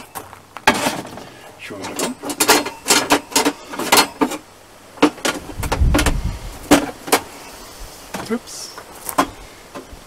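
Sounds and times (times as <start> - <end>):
metal grill rack clanking: 0.0 - 4.4.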